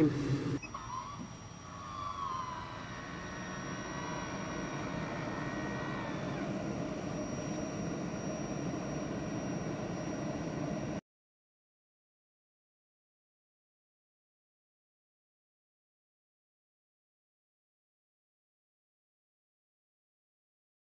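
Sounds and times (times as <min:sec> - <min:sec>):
motorised vent lid whining: 0:00.0 - 0:11.0
steady mechanical drone: 0:00.0 - 0:11.0.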